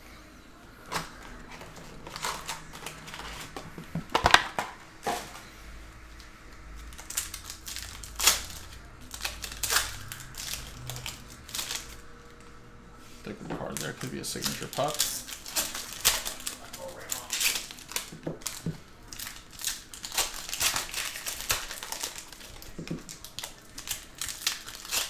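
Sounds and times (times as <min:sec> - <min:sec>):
packaging crinkling: 0:00.8 - 0:05.5, 0:06.2 - 0:12.5, 0:13.3 - 0:25.0
sharp wrapper crackles: 0:06.2 - 0:12.5, 0:13.2 - 0:25.0.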